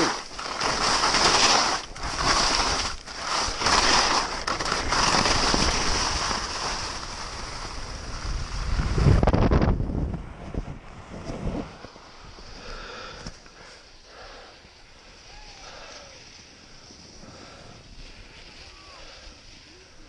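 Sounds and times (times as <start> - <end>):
skis scraping over packed snow: 0.0 - 20.0
wind on microphone: 4.9 - 12.6.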